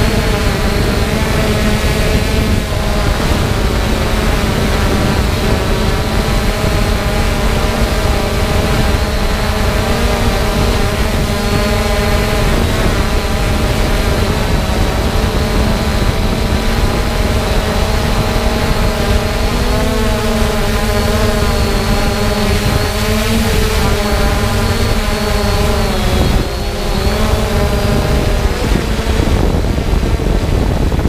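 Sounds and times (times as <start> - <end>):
drone motors humming: 0.0 - 31.0
wind rumble on microphone: 0.0 - 31.0.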